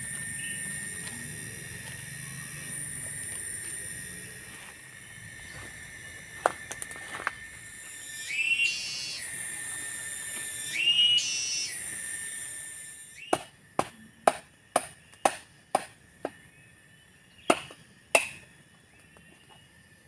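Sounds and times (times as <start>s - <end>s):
cicadas buzzing: 0.0s - 20.0s
machete chopping coconut: 13.3s - 16.4s, 17.5s - 18.4s.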